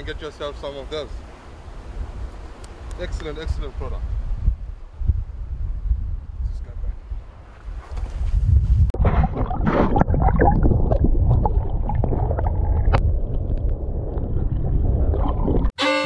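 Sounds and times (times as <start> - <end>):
underwater surf sloshing: 8.9 - 15.7.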